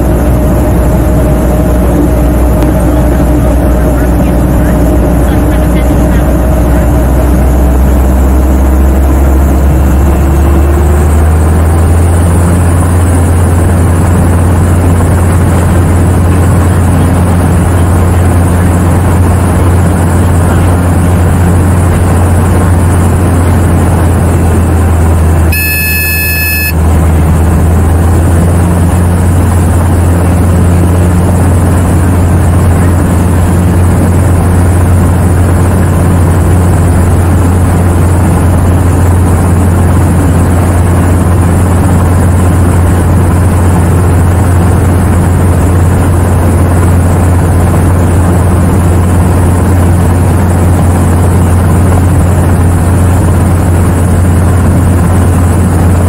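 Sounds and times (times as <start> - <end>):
helicopter drone inside cabin: 0.0 - 56.0
high electronic tone: 25.5 - 26.8.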